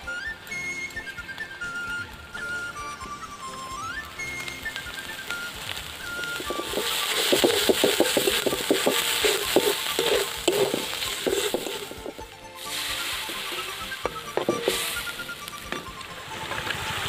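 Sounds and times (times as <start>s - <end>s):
food sizzling in a wok: 3.6s - 17.0s
metal spatula scraping a wok: 6.2s - 15.9s.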